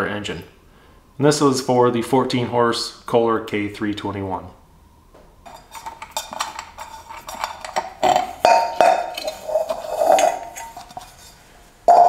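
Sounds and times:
metal ringing: 5.5s - 11.3s
air cleaner cover clicking and scraping: 5.5s - 11.4s.

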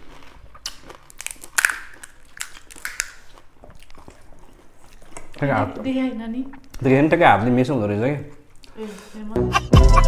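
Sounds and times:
fried shells crunching: 0.0s - 5.5s.

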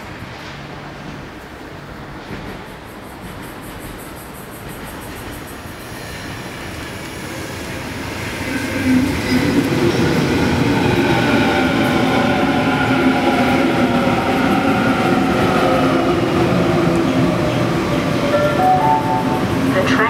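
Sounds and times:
electric train arriving: 0.0s - 20.0s.

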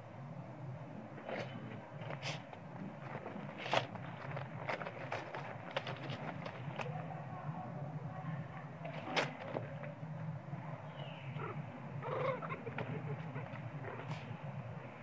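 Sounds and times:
monkeys moving over dry leaves: 2.2s - 7.1s
young monkey calling: 11.3s - 14.0s.

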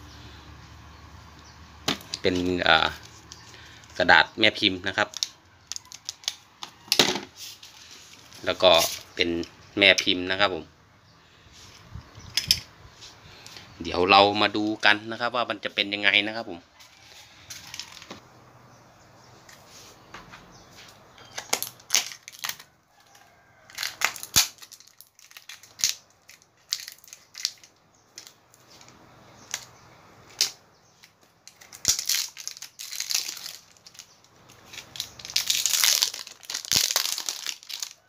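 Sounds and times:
paper baking cups crinkling: 1.9s - 9.5s, 16.9s - 18.2s, 20.8s - 38.0s
plastic bag handled: 31.6s - 38.0s.

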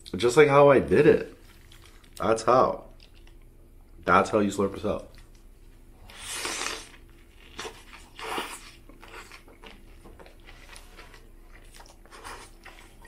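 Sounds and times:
chewing: 1.3s - 3.5s, 6.1s - 13.0s
biting into sandwich: 6.1s - 13.0s.

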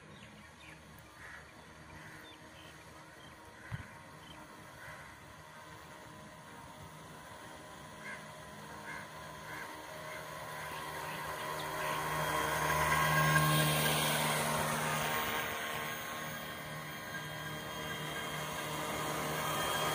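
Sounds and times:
electric motor whining: 3.6s - 19.9s.

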